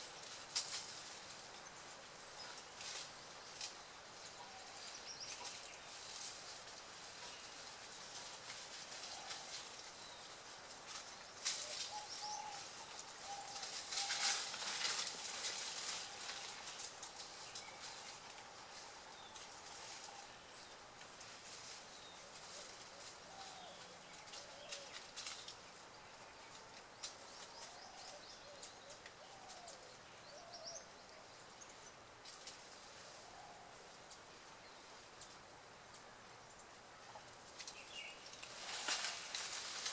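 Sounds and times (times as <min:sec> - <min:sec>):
faint bird calls: 0:11.4 - 0:15.1, 0:22.0 - 0:31.9, 0:33.0 - 0:38.2.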